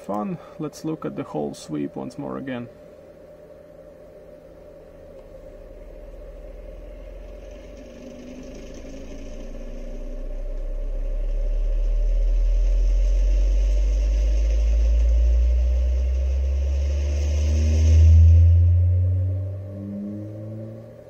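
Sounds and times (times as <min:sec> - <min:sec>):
subwoofer bass sweep hum: 0:02.2 - 0:21.0.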